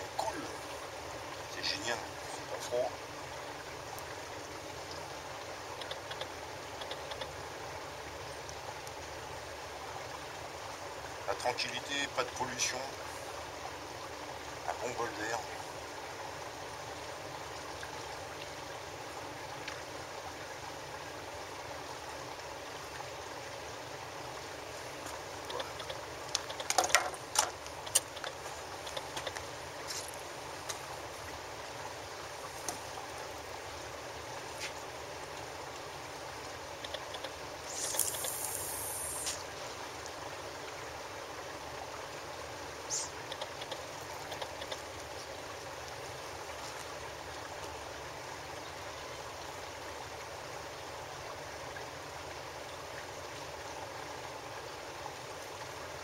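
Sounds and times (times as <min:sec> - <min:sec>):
sharp clicks and knocks: 0:25.8 - 0:29.4
short high hiss: 0:37.6 - 0:39.5.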